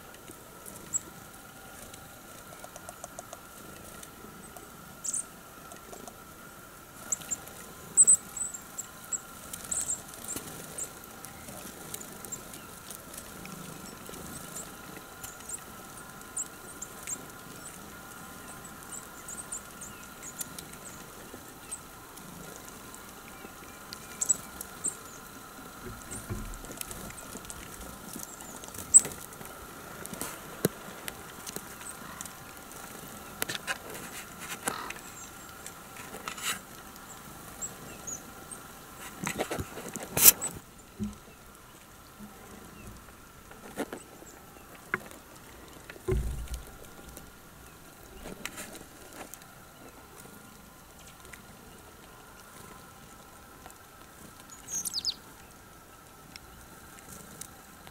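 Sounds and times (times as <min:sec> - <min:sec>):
birds pecking and tapping: 0:01.7 - 0:06.4, 0:07.0 - 0:51.5, 0:52.3 - 0:55.5.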